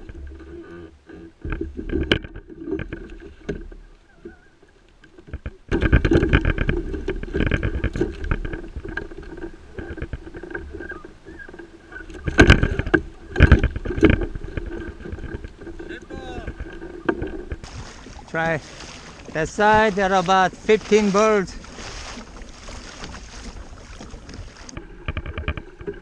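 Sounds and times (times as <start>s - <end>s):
water splashing against kayak hull: 0.0s - 26.0s
gear knocking against hull: 5.2s - 26.0s.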